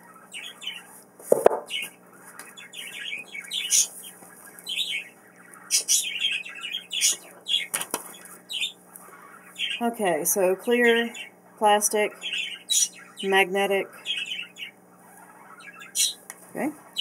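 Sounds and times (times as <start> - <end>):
pet birds chirping: 0.0 - 17.0
sharp knock: 1.3 - 1.7.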